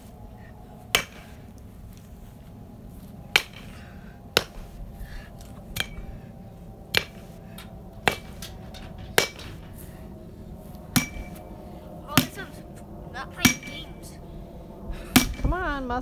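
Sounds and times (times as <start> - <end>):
bat striking pumpkin: 0.9 - 1.4, 3.3 - 4.8, 5.7 - 6.2, 6.9 - 9.8, 10.9 - 11.5, 12.1 - 12.6, 13.4 - 14.0, 15.1 - 15.5.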